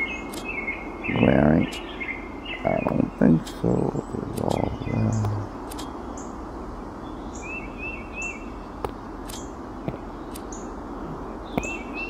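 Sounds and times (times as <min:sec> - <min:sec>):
bird chirps: 0:00.0 - 0:06.4, 0:07.0 - 0:12.0
steady background hiss: 0:00.0 - 0:12.0
sharp clicks: 0:00.2 - 0:00.5, 0:04.3 - 0:06.0, 0:08.8 - 0:10.6.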